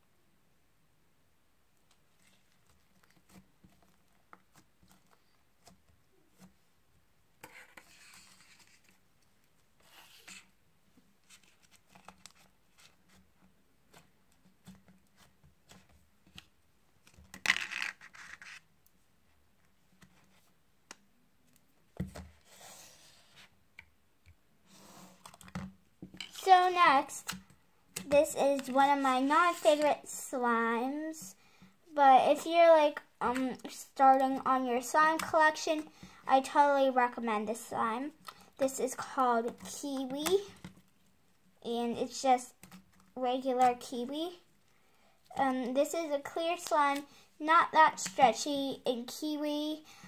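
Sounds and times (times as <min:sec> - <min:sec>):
rustling scrapes: 0:07.4 - 0:09.0, 0:09.8 - 0:10.5, 0:17.5 - 0:18.6.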